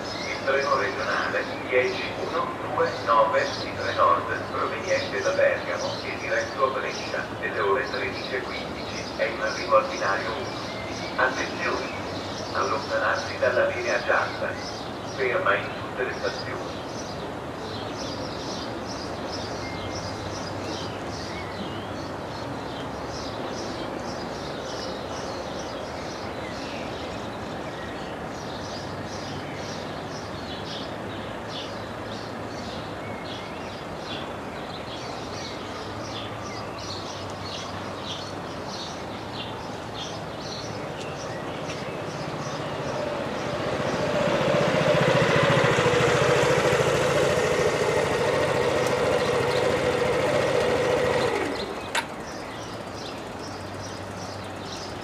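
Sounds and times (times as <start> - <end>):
train engine: 0.0 - 17.6, 39.7 - 55.0.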